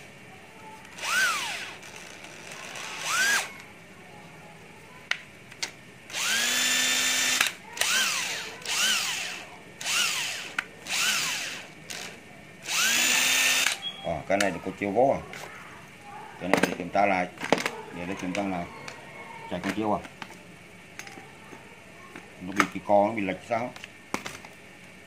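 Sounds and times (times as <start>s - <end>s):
drill motor whining: 0.9s - 3.6s, 6.1s - 13.8s.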